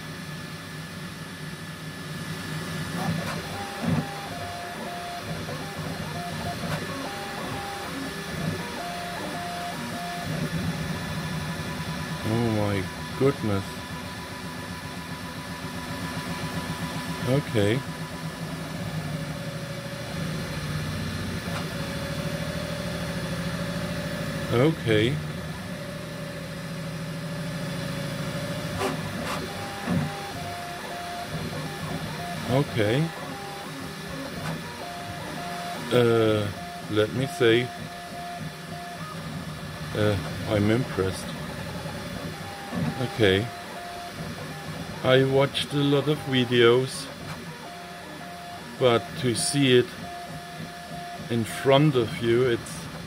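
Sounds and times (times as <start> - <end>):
steady printer hum: 0.0 - 53.0
stepper motors singing tones: 3.4 - 18.4.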